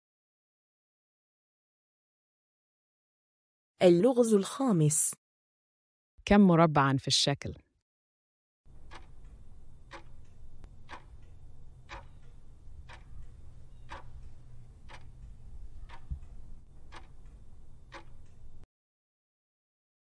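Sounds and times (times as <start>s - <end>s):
low steady hum: 8.7s - 18.6s
clock ticking: 8.7s - 18.7s.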